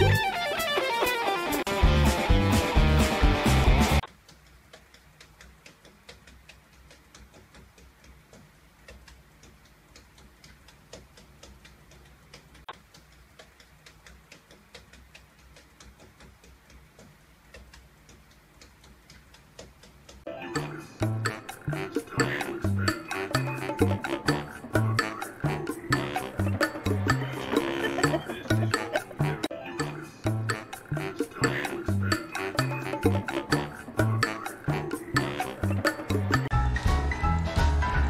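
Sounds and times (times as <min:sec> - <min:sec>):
music: 0:00.0 - 0:04.1, 0:20.3 - 0:38.0
fast ticking: 0:04.0 - 0:20.2, 0:21.0 - 0:29.5.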